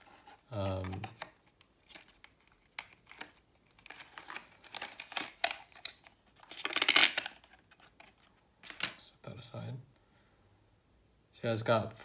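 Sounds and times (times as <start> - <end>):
plastic packaging crinkling: 0.0 - 9.0.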